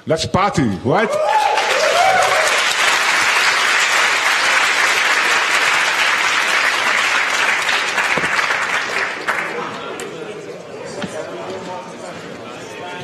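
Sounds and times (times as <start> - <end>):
audience applauding: 1.2 - 9.9.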